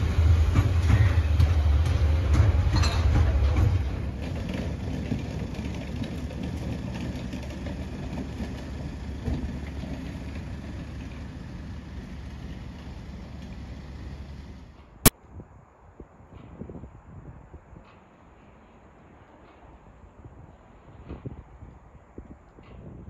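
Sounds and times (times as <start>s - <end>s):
freight train wagons rumbling: 0.0s - 15.1s.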